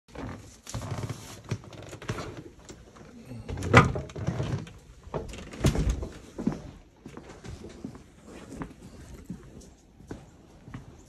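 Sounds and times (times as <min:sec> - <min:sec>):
door clunking open: 0:03.5 - 0:06.2.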